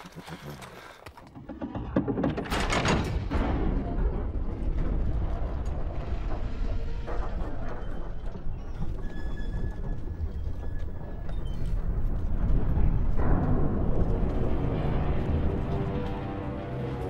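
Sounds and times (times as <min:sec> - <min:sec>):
deep continuous rumble: 0:01.4 - 0:17.0
dark orchestral music: 0:03.4 - 0:17.0.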